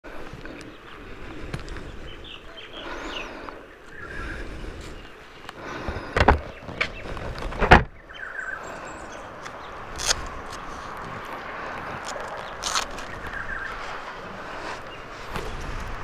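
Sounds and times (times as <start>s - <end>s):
faint bird chirps: 8.0s - 9.8s.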